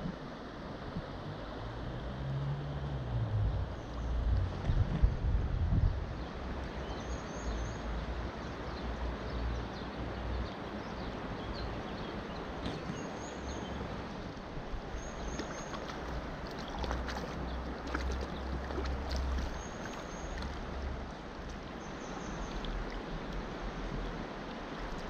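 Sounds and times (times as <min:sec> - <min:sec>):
river water flowing over stones: 0:00.0 - 0:25.0
wind buffeting microphone: 0:03.2 - 0:06.6.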